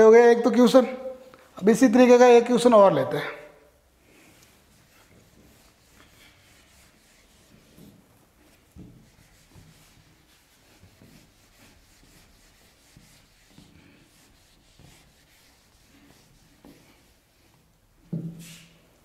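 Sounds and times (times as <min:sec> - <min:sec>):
duster rubbing on whiteboard: 0:04.5 - 0:18.8.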